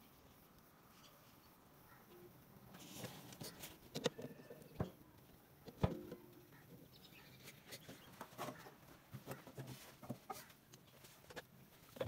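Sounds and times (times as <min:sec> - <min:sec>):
plastic jug clicks and knocks: 0:05.7 - 0:06.3.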